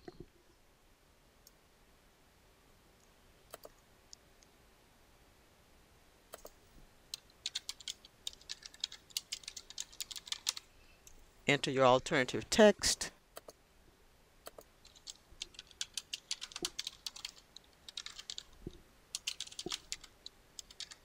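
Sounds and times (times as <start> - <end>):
typing on a computer keyboard: 7.1 - 10.6, 14.5 - 21.0.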